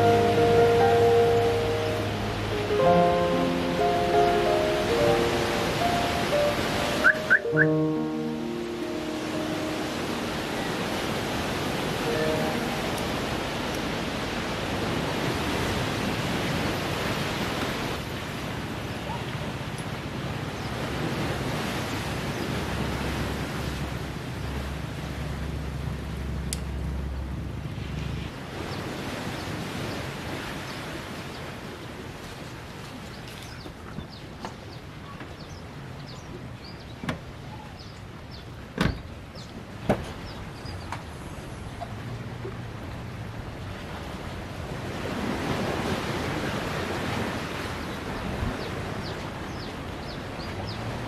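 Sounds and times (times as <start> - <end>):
sea surf breaking: 0.0 - 32.8, 39.1 - 51.0
small birds chirping: 33.1 - 39.5, 47.4 - 51.0
car door shutting thump: 38.8 - 39.0.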